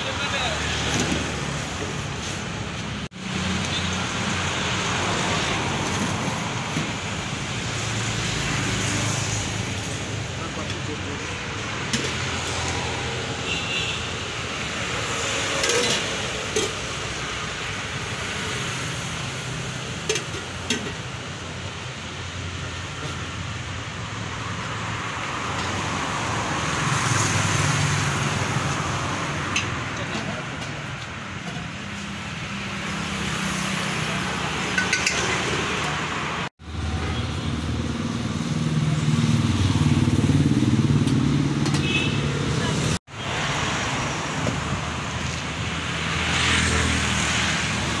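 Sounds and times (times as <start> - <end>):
street traffic: 0.0 - 48.0
steel ladle clinking on pots: 15.6 - 16.8, 34.7 - 35.5.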